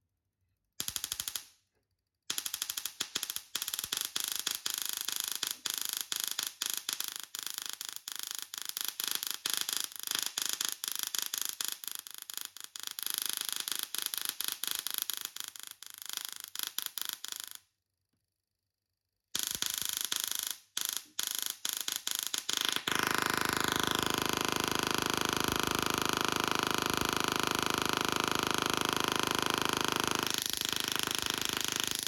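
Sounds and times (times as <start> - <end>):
electric sparks crackling: 30.0 - 32.0.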